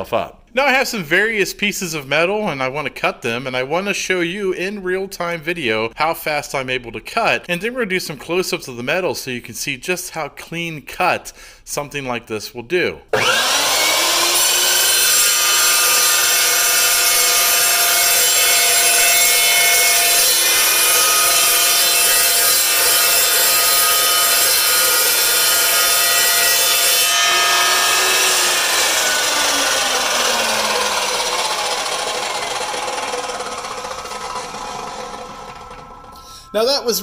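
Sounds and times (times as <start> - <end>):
metal chop saw cutting steel: 13.2 - 36.5
saw motor winding down whine: 13.2 - 36.9.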